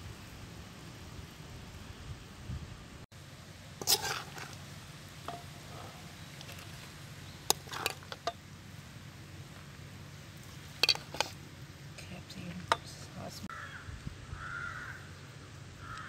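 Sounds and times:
metal spoon clinking on pot: 5.3s - 5.6s, 10.8s - 11.3s.

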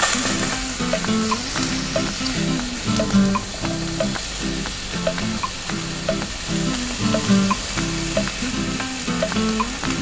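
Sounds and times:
background music with short notes: 0.1s - 10.0s.

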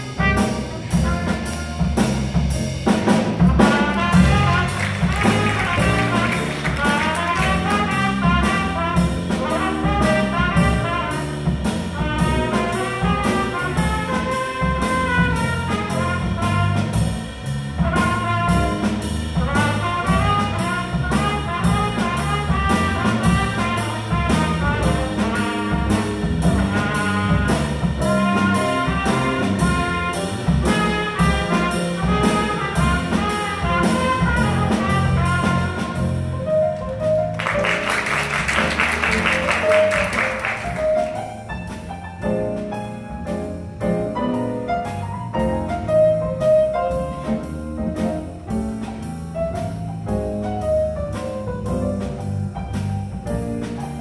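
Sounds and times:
trumpet and saxophones: 0.0s - 2.3s, 3.4s - 17.2s, 17.8s - 36.3s
bass: 0.0s - 54.0s
drum kit beat: 0.0s - 54.0s
piano: 0.0s - 54.0s.

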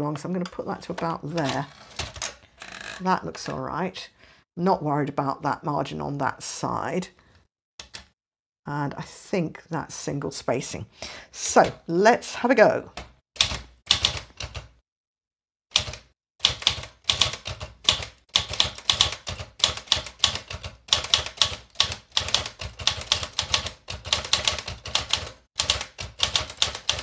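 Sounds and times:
manual typewriter typing: 15.7s - 27.0s.

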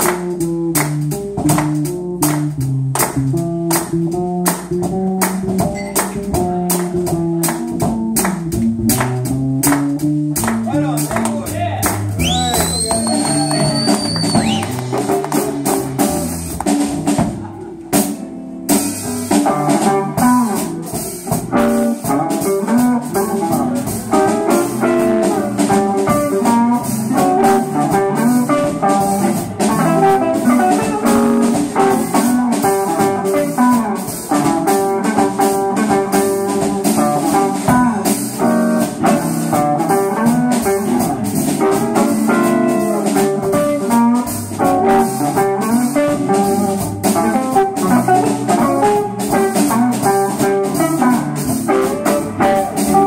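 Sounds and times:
bass guitar: 0.0s - 53.0s
drum kit steady beat: 0.0s - 53.0s
electric guitar lines: 12.2s - 53.0s.

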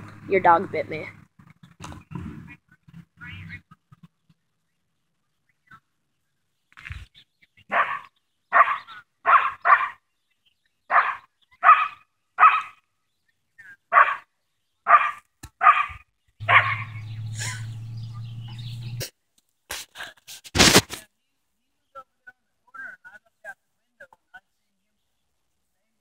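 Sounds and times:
dog barking: 7.7s - 10.0s, 10.9s - 12.8s, 13.9s - 14.2s, 14.9s - 17.0s
steady low hum: 16.4s - 19.1s.

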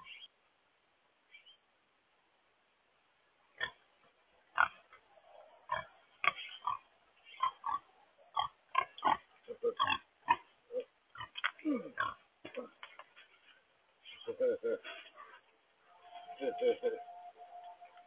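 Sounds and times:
pigs grunting: 5.6s - 12.8s.

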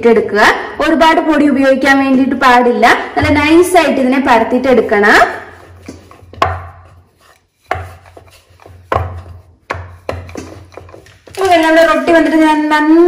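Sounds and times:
rolling pin knocking on board: 5.6s - 7.0s, 7.6s - 11.3s.

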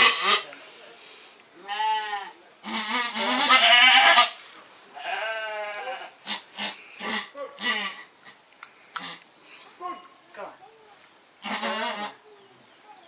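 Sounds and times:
goat bleating: 1.6s - 4.4s, 5.0s - 8.4s, 11.4s - 12.2s.

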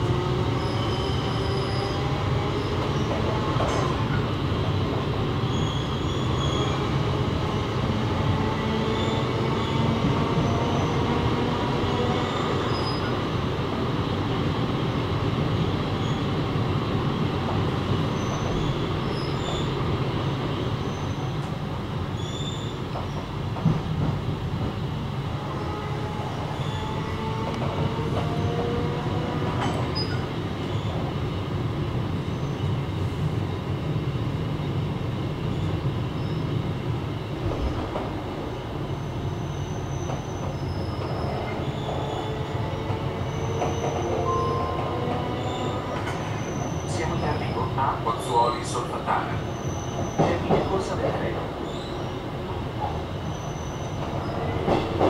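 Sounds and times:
train rumbling on track: 0.0s - 55.0s
train knock: 50.2s - 51.0s, 54.0s - 55.0s
faint wheel squeal: 53.2s - 54.4s.

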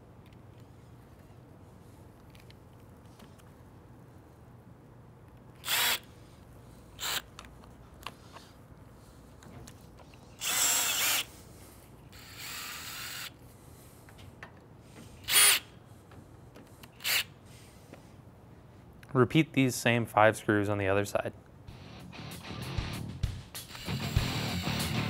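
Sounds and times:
cordless drill driving screws: 5.6s - 6.1s, 7.0s - 7.2s, 10.4s - 11.3s, 12.2s - 13.3s, 15.2s - 15.6s, 17.0s - 17.3s, 23.7s - 25.0s.

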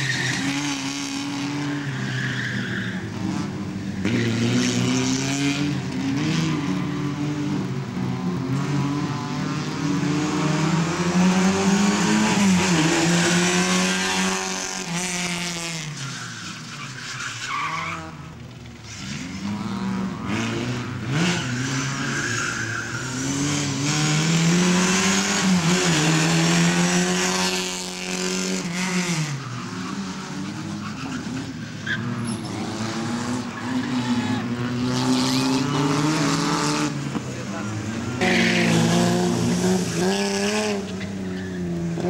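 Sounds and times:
car engine revving hard: 32.5s - 40.9s.

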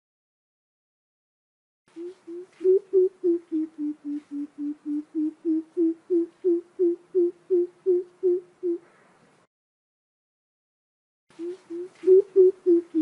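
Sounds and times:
bird giving deep hooting call: 2.0s - 8.8s, 11.4s - 13.0s.

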